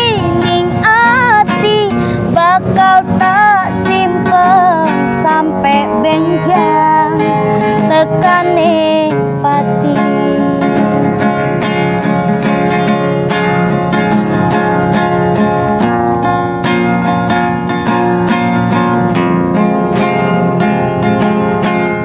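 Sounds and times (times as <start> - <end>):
woman singing: 0.0 - 11.2
strummed acoustic guitar: 0.0 - 22.0.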